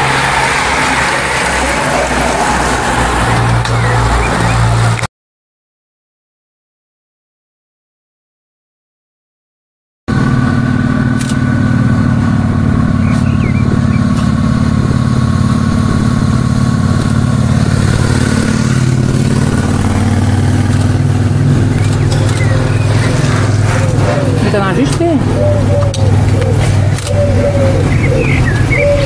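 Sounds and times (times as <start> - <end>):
motorcycle engine at low revs: 10.1 - 29.0.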